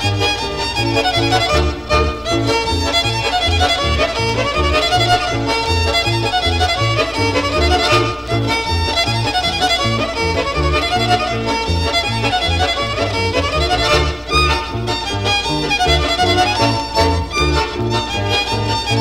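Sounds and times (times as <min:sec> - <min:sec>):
fiddle melody: 0:00.0 - 0:19.0
folk dance band playing: 0:00.0 - 0:19.0
steady bass note: 0:06.5 - 0:19.0.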